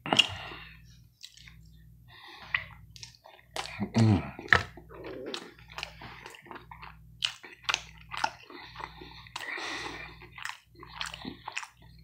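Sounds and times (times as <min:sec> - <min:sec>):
chewing soft food: 0:00.0 - 0:12.0
wet mouth clicks: 0:04.4 - 0:12.0.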